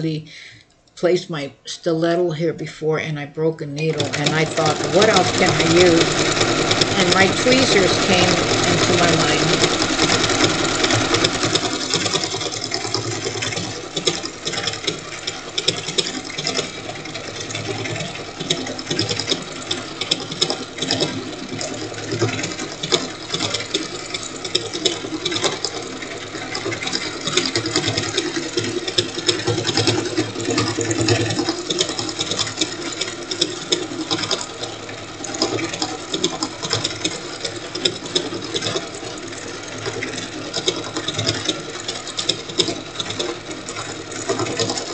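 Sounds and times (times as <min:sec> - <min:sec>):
sewing machine stitching: 0:03.7 - 0:44.9.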